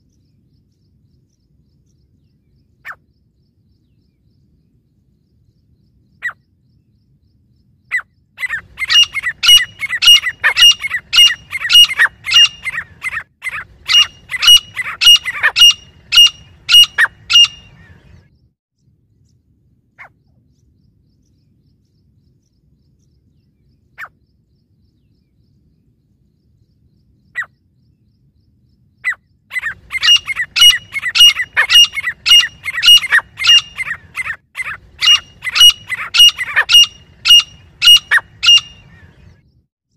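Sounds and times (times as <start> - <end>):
francolins calling: 7.9 - 18.2, 29.0 - 39.4.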